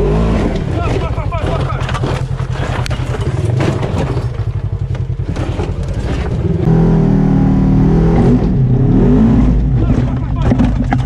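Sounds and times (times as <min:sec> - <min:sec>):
off-road vehicle engine revving: 0:00.0 - 0:11.0
knocks and rattles from cab: 0:00.4 - 0:06.7, 0:09.6 - 0:11.0.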